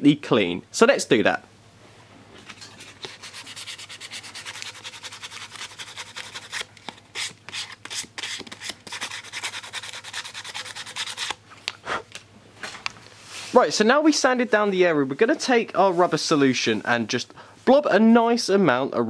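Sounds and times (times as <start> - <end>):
sandpaper rubbing rubber hose: 2.8 - 11.4.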